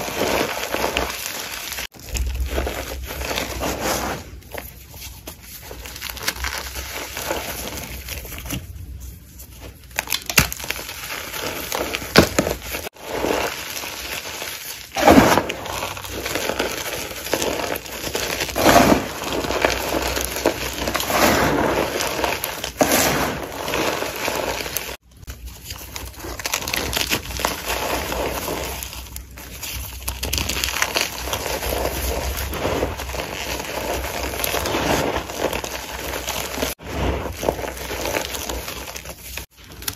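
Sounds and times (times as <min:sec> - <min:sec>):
chalk blocks crunching: 0:09.4 - 0:39.9.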